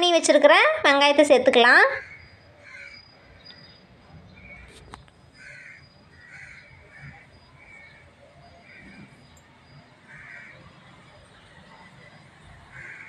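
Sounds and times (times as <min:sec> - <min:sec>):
crow cawing: 0:02.0 - 0:03.2, 0:05.4 - 0:08.0, 0:08.6 - 0:09.1, 0:10.0 - 0:10.7, 0:12.7 - 0:13.0.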